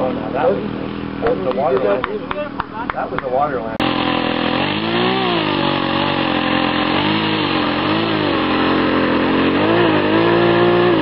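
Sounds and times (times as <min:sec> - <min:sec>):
model airplane engine running: 0:03.7 - 0:11.0.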